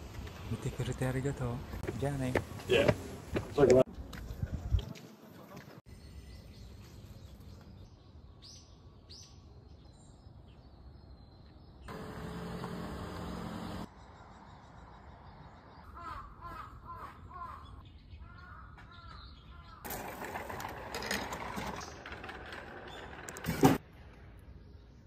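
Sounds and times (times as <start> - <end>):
crow cawing: 16.0 - 19.7.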